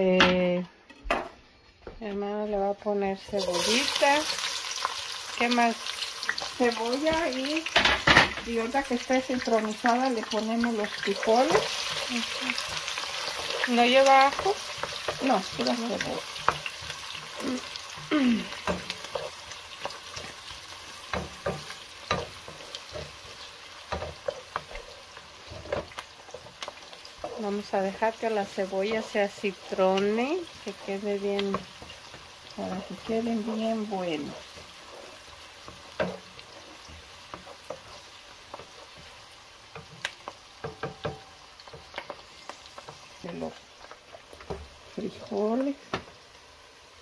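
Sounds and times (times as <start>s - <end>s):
onion sizzling in oil: 2.5s - 47.0s
wooden spoon scraping a pot: 8.5s - 45.4s
wooden spoon knocking on pot: 21.1s - 26.6s, 35.7s - 37.8s, 40.6s - 41.9s.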